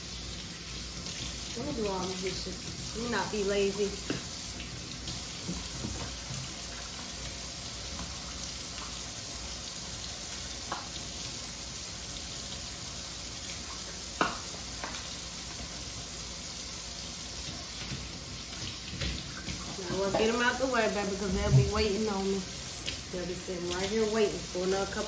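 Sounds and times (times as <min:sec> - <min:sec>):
tap running into sink: 0:14.2 - 0:15.0.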